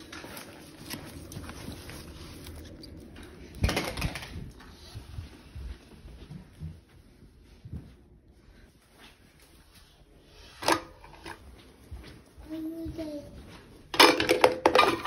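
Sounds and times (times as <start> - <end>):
books shuffled in fabric basket: 0.0 - 3.2.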